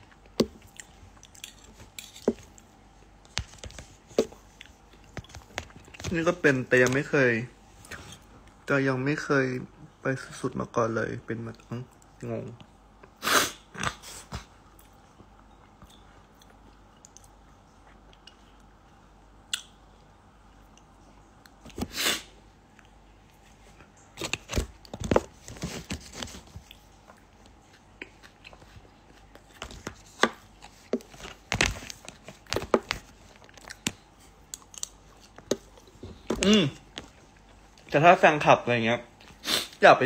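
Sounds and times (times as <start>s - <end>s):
crunchy chewing: 0.0s - 2.7s, 26.4s - 29.8s, 30.4s - 37.9s.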